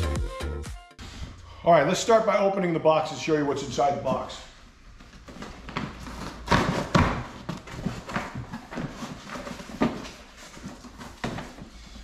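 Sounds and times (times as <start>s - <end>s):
cardboard rustling: 4.9s - 12.0s.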